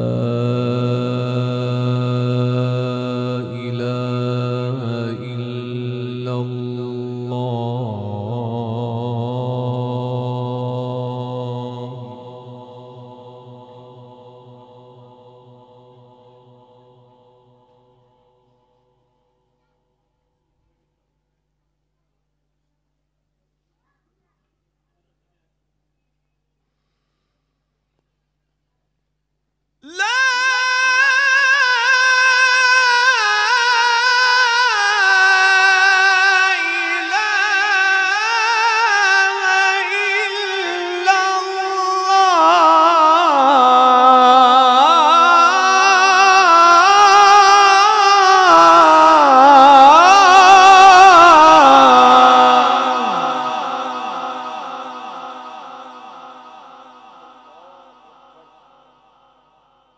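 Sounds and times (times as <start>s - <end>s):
man reciting through a pa: 0.0s - 17.3s, 29.8s - 58.9s.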